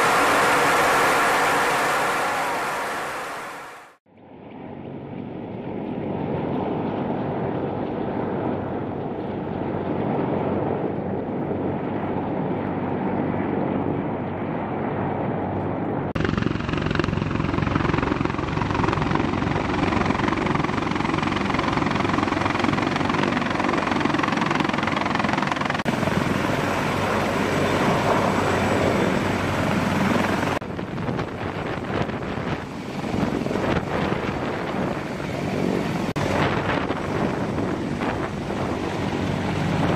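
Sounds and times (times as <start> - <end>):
wind on microphone: 7.3 - 39.9
helicopter rotors thudding: 15.8 - 39.9.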